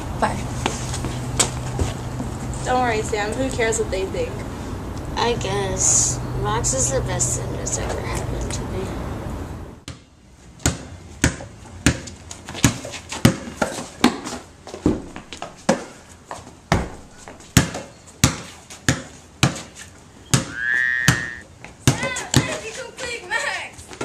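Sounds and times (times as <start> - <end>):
basketball bouncing on concrete: 9.8 - 16.0, 16.7 - 19.7, 20.3 - 22.7.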